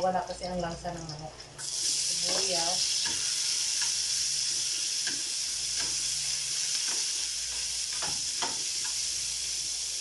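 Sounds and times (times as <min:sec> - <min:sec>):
ginger sizzling in hot oil: 0:00.6 - 0:10.0
spatula scraping and tapping pan: 0:02.2 - 0:09.1.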